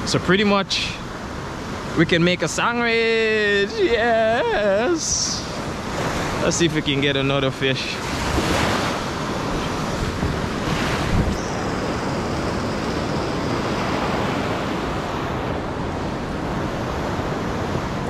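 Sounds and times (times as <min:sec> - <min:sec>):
ocean surf breaking: 0:00.0 - 0:18.0
wind on microphone: 0:08.0 - 0:18.0.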